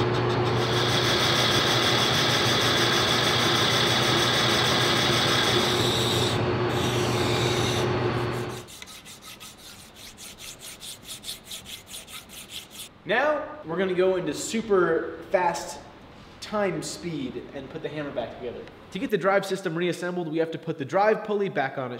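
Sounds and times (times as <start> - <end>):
metal lathe humming and whining: 0.0 - 8.7
hand file strokes on metal: 6.8 - 12.9.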